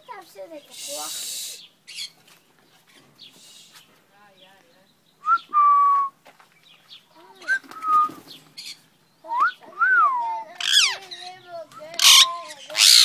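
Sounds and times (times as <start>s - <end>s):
harsh parrot call: 10.6s - 13.0s.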